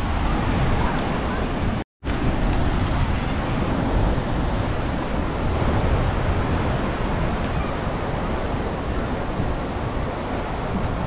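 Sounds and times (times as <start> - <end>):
ocean surf breaking: 0.0 - 11.0
wind rumbling on microphone: 0.0 - 11.0.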